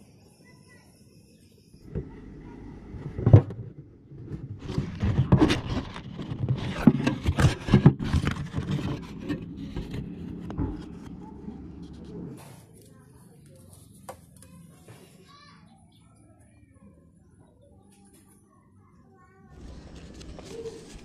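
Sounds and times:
metal tin knocks and scrapes: 4.3s - 11.2s.

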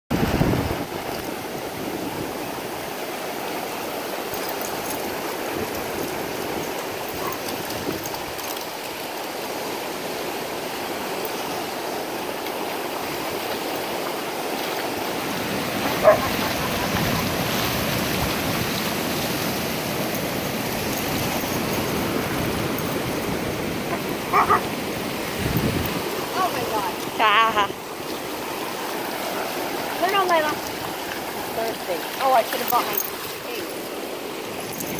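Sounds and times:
ocean surf washing: 0.1s - 34.9s
dog barks: 15.8s - 16.8s, 23.9s - 24.7s.

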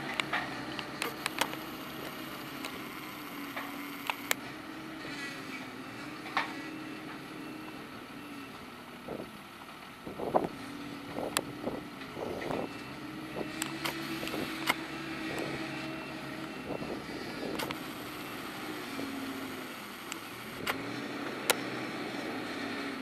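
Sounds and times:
sharp clicks and knocks: 0.0s - 4.4s
diesel engine running: 0.0s - 23.0s.

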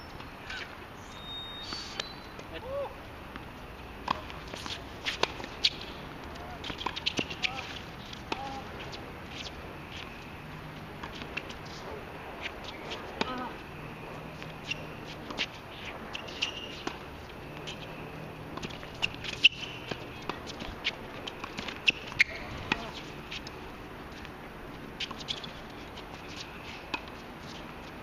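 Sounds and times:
shuffling footsteps: 2.4s - 28.0s
racket hitting tennis ball: 4.0s - 10.1s.

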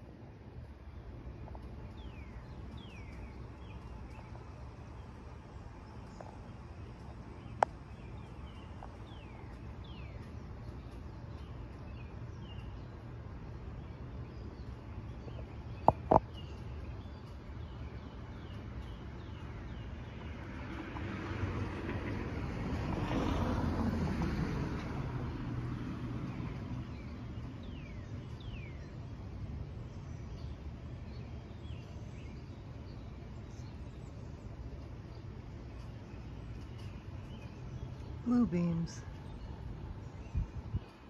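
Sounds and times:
birds chirping: 0.6s - 20.4s, 26.3s - 41.0s
steady low rumble: 26.6s - 41.0s.

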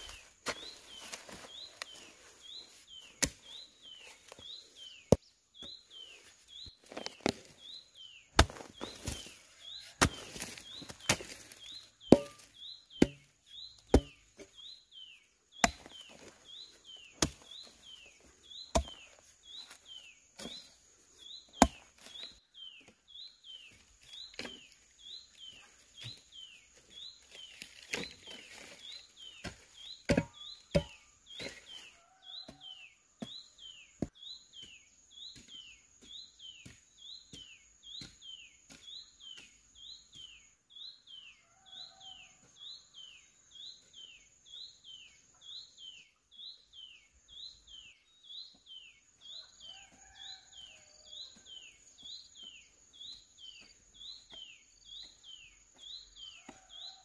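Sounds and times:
bird chirping: 0.0s - 57.0s
hoe chopping into dry soil: 3.0s - 3.6s, 8.3s - 14.6s, 15.6s - 16.3s, 16.9s - 19.2s, 21.6s - 22.3s, 29.3s - 31.8s.

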